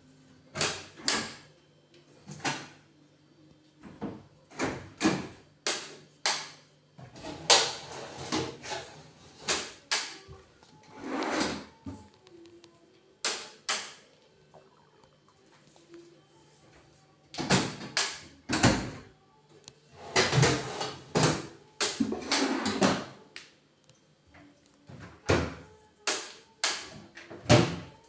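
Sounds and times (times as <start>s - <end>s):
drawer sliding rasp: 10.9s - 11.7s
cabinet doors and drawers clacking: 20.0s - 23.1s.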